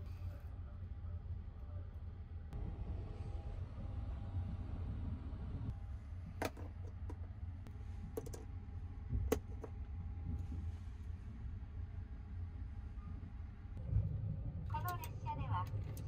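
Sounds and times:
train low rumble: 0.0 - 16.0.

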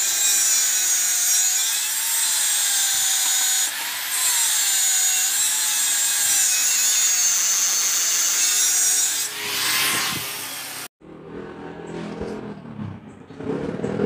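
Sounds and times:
angle grinder cutting steel: 0.0 - 10.9.

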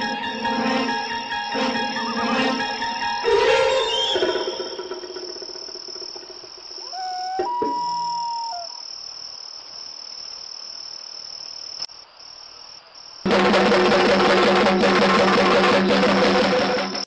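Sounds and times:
crickets trilling: 3.0 - 13.3
loud music: 13.3 - 17.0.

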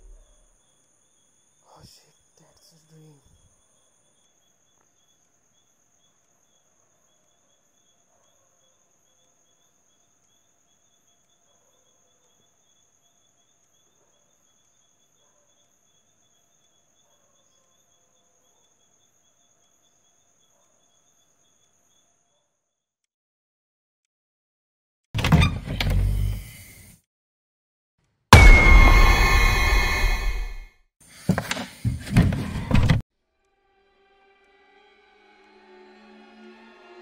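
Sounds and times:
crickets trilling: 0.0 - 22.4
pulsing insect chirp: 0.0 - 22.4.

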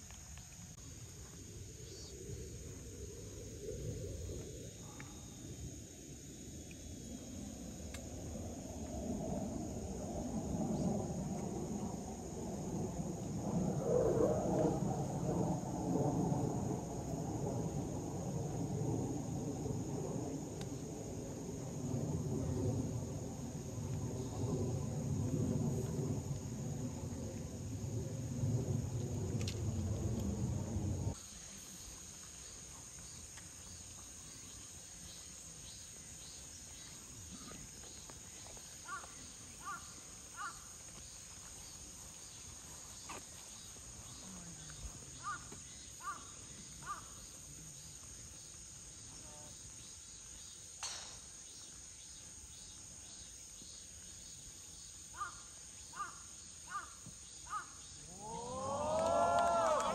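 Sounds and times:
insects trilling: 0.0 - 59.9
low rumble: 1.5 - 31.2.

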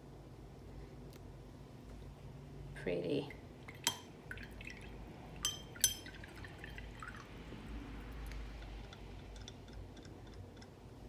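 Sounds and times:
faint water sounds: 2.8 - 10.7
paintbrush clinking against glass jar: 5.4 - 6.2, 8.6 - 10.8.

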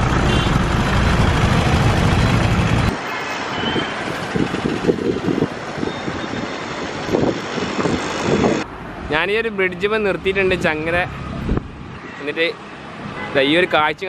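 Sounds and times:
vehicle engine rumble: 0.0 - 3.0, 4.0 - 12.1
light traffic noise: 0.0 - 14.0
wind on microphone: 3.7 - 8.7, 11.3 - 11.9.

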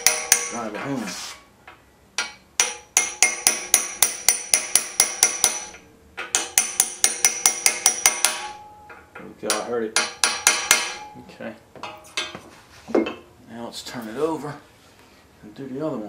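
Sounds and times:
hammer striking metal socket: 2.2 - 11.2.

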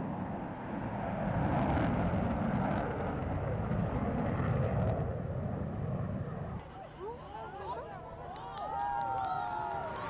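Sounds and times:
jet engine drone: 0.0 - 6.6.

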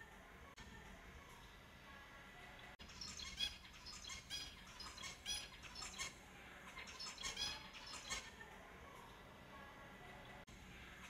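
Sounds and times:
finches calling: 2.8 - 8.3.

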